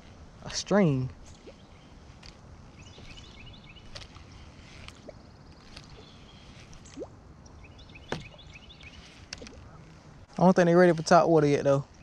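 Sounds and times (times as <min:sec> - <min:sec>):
low wind rumble on microphone: 0:00.0 - 0:12.0
faint chirping: 0:00.8 - 0:10.3.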